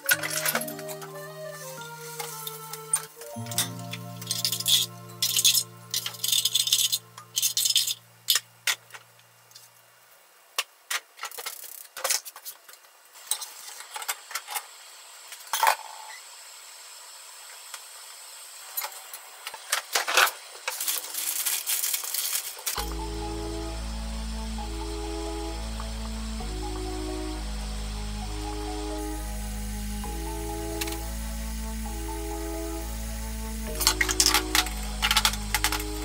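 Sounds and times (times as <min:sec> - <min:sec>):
plastic packaging crinkling: 0:20.7 - 0:22.8.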